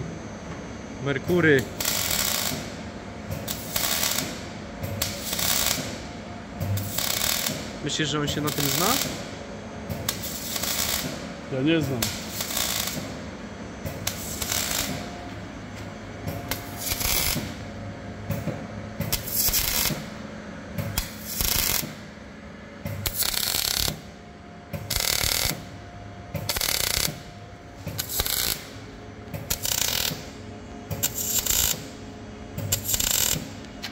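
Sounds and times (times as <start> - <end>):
workshop tool bursts: 3.4 - 4.4, 11.9 - 13.2, 16.5 - 17.6, 19.1 - 20.1, 20.9 - 22.0, 22.8 - 24.1, 24.8 - 25.7, 26.4 - 31.9, 32.6 - 33.6.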